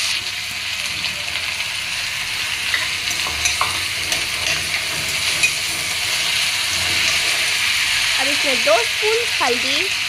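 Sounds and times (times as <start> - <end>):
beans sizzling in hot oil: 0.0 - 10.0
metal spatula scraping pan: 2.7 - 8.1.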